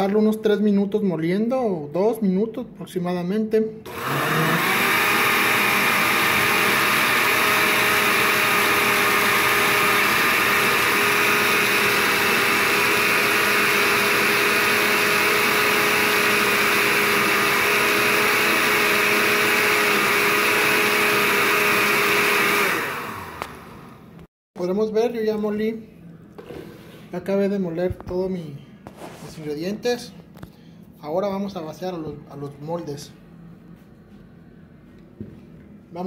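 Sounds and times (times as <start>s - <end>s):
blender motor whine: 3.9s - 24.1s.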